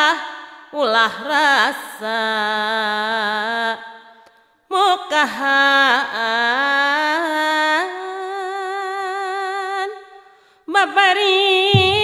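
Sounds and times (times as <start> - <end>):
person singing ornamented verse: 0.0 - 12.0.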